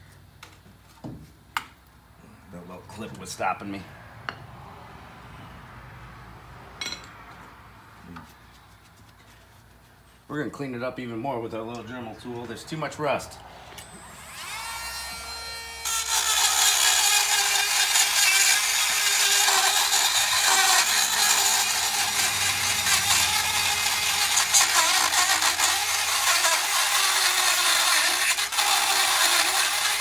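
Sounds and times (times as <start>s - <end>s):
rotary tool grinding metal: 13.8s - 30.0s.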